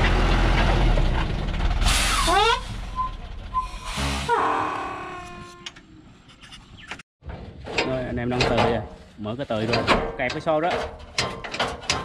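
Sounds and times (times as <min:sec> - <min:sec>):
truck engine running: 0:00.0 - 0:04.3.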